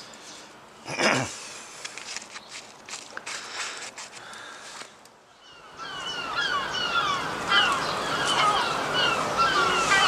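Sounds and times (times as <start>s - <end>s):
birds chirping: 4.2s - 10.0s.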